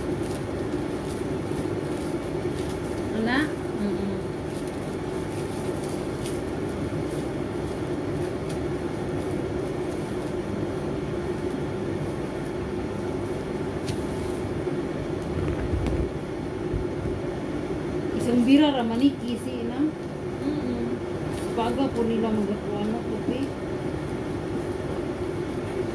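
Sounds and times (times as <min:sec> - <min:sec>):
low mechanical hum: 0:00.0 - 0:25.9.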